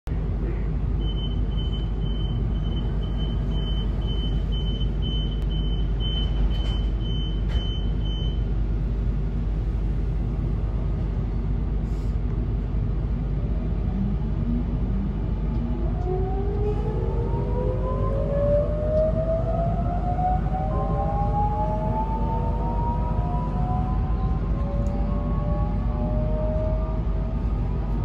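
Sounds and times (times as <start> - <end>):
train equipment hum: 0.1 - 28.0
door-closing warning beeps: 1.0 - 8.4.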